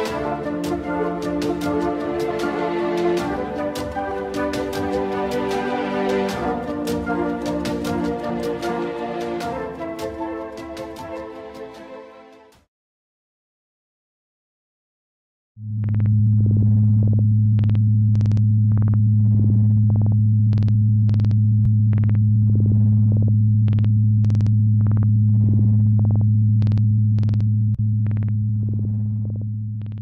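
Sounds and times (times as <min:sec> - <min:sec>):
low electronic hum: 0:15.6 - 0:30.0
sharp clicks and buzzy crackles: 0:17.6 - 0:19.0, 0:20.0 - 0:22.2, 0:26.1 - 0:28.8.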